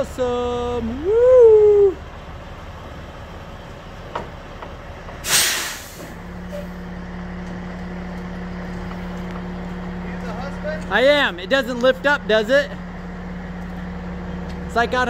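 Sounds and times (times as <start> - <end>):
truck engine rumble: 0.0 - 15.0
truck air brake hiss: 5.2 - 6.7.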